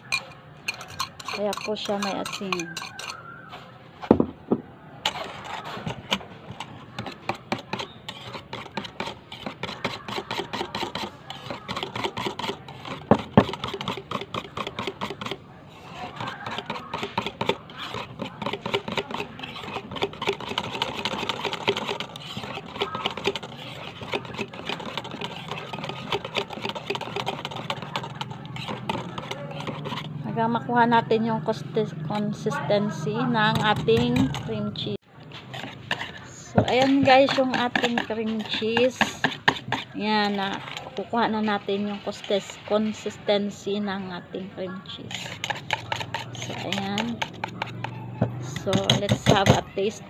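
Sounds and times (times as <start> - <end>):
whisk clattering in metal bowl: 0.0 - 3.2, 5.1 - 30.1, 33.4 - 34.7, 35.3 - 43.1, 45.1 - 49.7.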